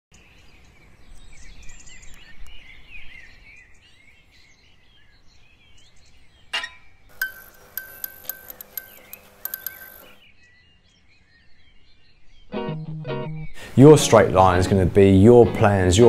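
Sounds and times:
birds twittering: 0.2 - 12.5
low outdoor hum: 7.1 - 10.2
music with ticking: 7.1 - 10.2.

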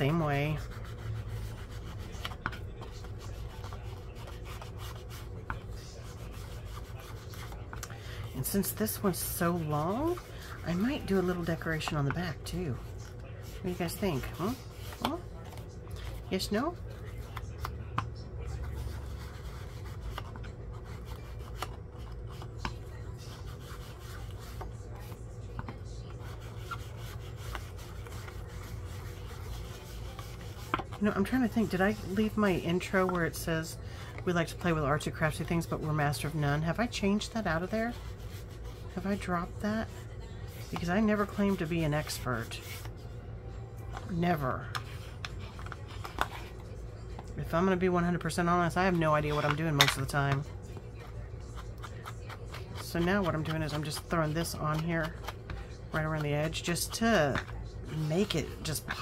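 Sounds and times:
paper being rubbed: 0.0 - 17.6, 18.4 - 25.2, 26.0 - 33.1, 34.5 - 42.9
steady low hum: 0.0 - 59.0.

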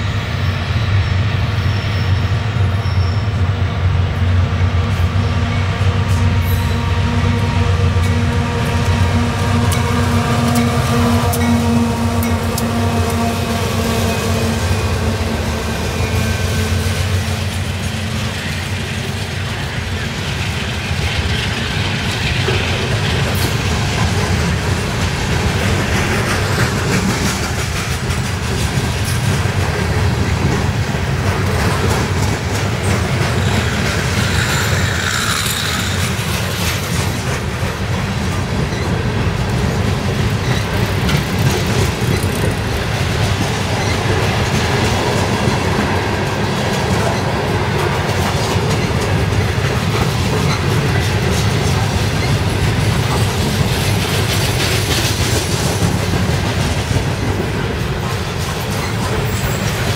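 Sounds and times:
train wheels rumbling on rails: 0.0 - 59.9
wheels clicking over rail joints: 17.4 - 59.9.

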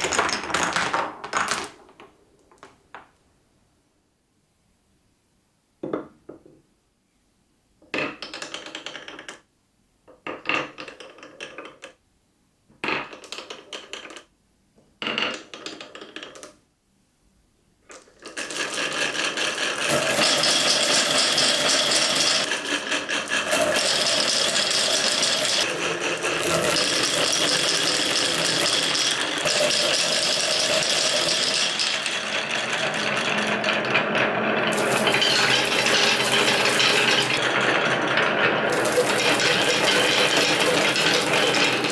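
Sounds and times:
glass marbles rattling down wooden lanes: 0.0 - 1.8, 18.2 - 41.9
wooden knock: 5.8 - 6.6.

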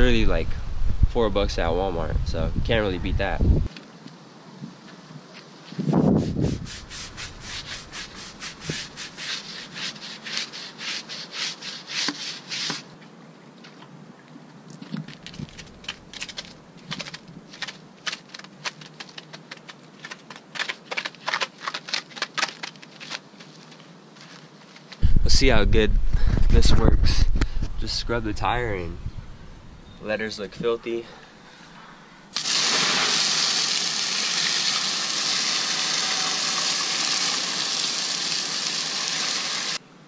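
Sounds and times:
brush scrubbing rubber tire: 5.9 - 12.9.

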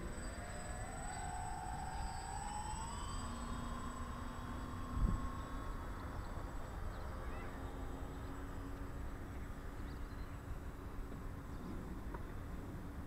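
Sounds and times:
model aircraft motors droning: 0.0 - 13.0
wind buffeting microphone: 3.6 - 7.1.

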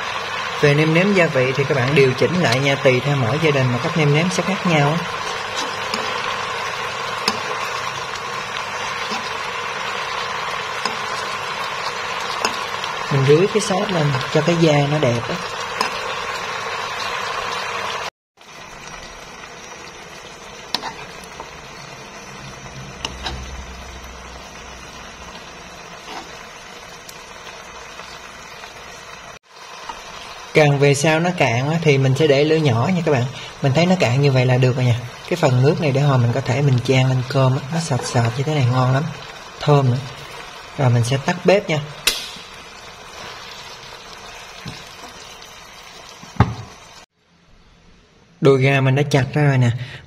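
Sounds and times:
sauce sizzling in a frying pan: 0.0 - 47.2
low hum: 18.8 - 27.7.

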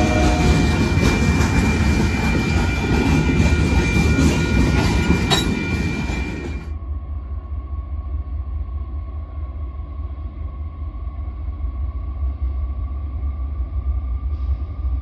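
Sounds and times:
freight train wheels clattering: 0.0 - 6.7
low rumble with faint hum: 6.7 - 15.0.

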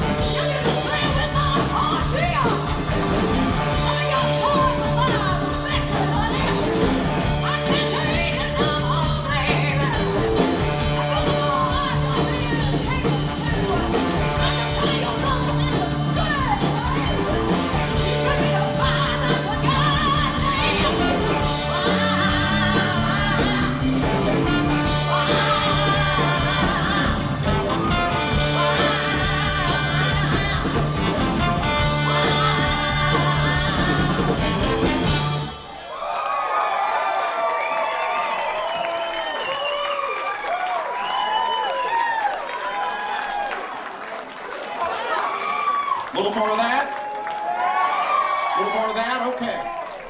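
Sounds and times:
live rock band: 0.0 - 35.8
woman singing: 0.1 - 2.8, 3.7 - 27.5, 28.2 - 35.1.

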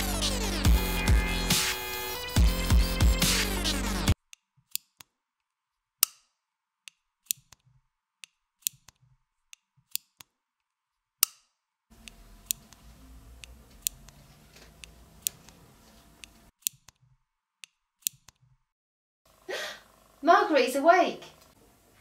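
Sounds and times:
electronic music: 0.0 - 4.2
knitting needles clicking: 4.2 - 18.6.

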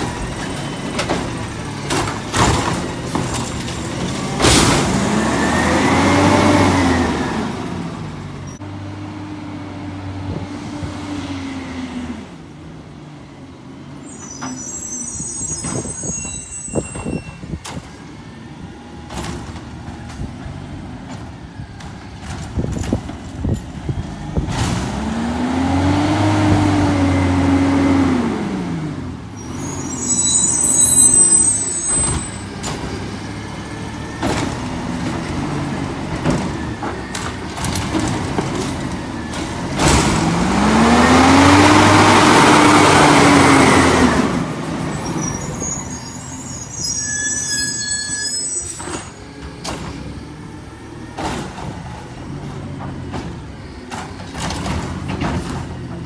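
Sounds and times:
garbage truck engine revving: 0.0 - 9.0, 24.4 - 29.2, 32.6 - 45.0.

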